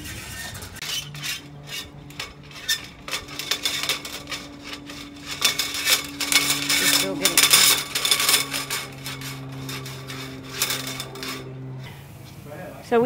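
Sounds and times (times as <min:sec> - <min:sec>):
cables scraping against metal mast: 0:00.0 - 0:12.0.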